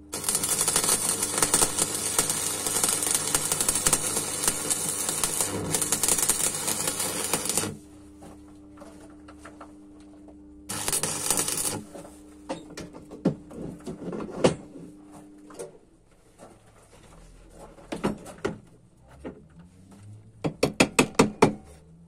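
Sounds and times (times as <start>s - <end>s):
welding arc crackling: 0.0s - 7.8s, 10.7s - 11.9s
steady low hum: 0.0s - 17.2s.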